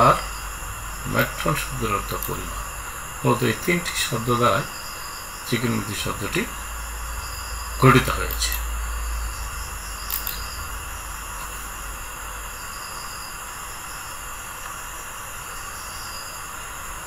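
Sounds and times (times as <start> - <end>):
faint low hum: 0.0 - 17.0
recording hiss: 0.0 - 17.0
click: 10.1 - 10.5.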